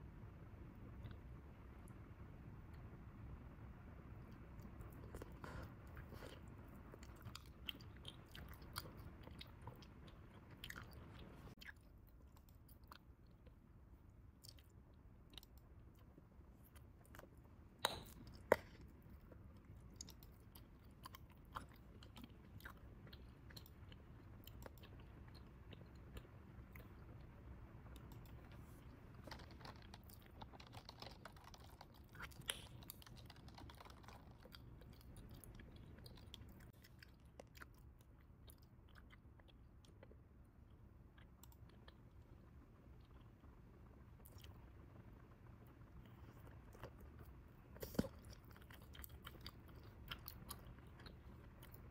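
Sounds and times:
gum chewing: 4.3 - 13.6, 14.4 - 40.3, 46.0 - 51.9
gum snaps: 17.8 - 18.8, 29.3 - 34.3.

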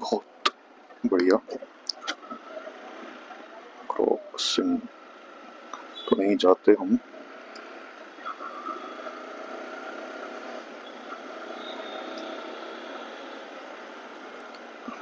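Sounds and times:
road and wind noise: 0.0 - 15.0
motorcycle engine running: 7.0 - 15.0.

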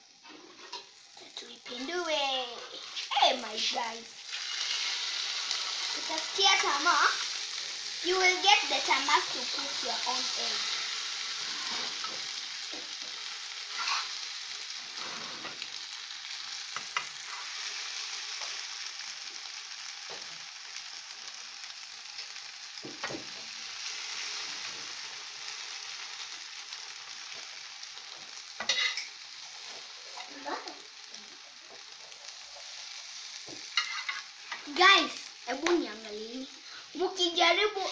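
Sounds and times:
omelette sizzling in a pan: 0.0 - 37.9
spatula scraping and tapping pan: 28.2 - 29.1, 33.4 - 34.6.

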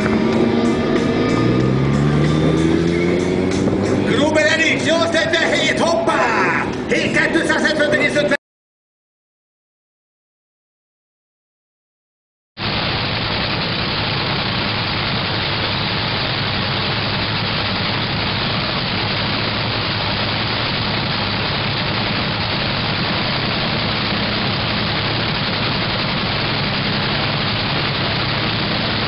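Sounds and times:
dragster engine idling: 12.6 - 29.0.

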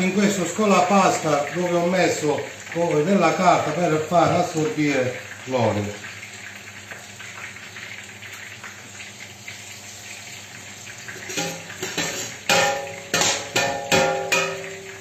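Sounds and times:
eggplant sizzling in hot oil: 0.0 - 15.0
metal skimmer clanking on pans: 11.1 - 15.0.

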